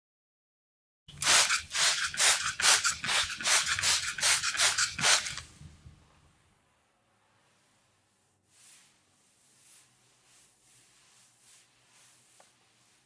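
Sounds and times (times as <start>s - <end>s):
scrubbing a soapy surface: 7.4s - 13.0s.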